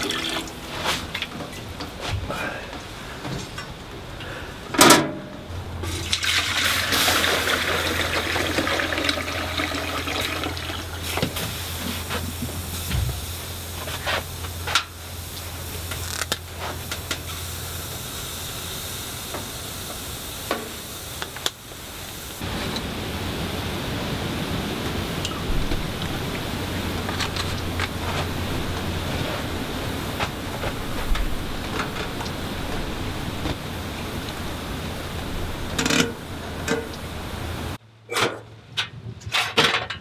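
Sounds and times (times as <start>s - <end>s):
water pouring into metal container: 0.0s - 1.2s, 5.8s - 11.1s.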